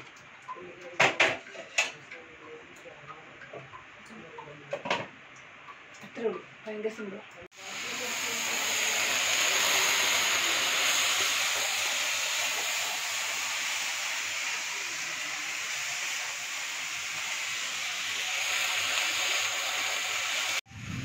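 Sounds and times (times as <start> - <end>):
vegetables sizzling in oil: 7.5 - 21.0.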